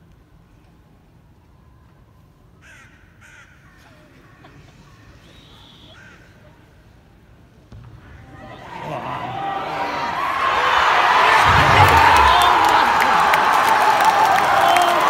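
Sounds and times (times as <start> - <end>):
stadium crowd murmuring: 3.7 - 15.0.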